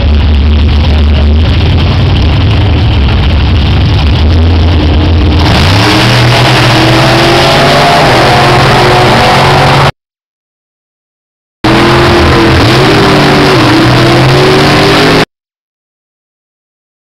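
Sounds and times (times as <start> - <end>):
drag cars accelerating away: 0.0 - 9.9, 11.6 - 15.3
drag car engines revving: 0.0 - 10.0, 11.6 - 15.3.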